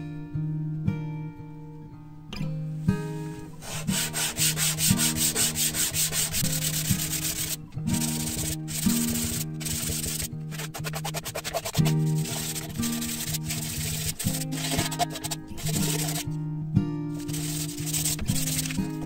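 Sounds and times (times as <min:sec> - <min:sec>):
wood scratching on sandpaper: 0:03.6 - 0:16.3, 0:17.2 - 0:19.0.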